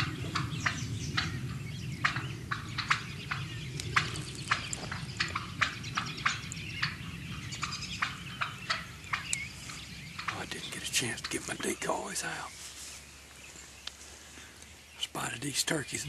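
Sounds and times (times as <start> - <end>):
steady low rumble: 0.0 - 16.0
footsteps crunching dry leaves: 4.1 - 5.4, 12.5 - 14.8.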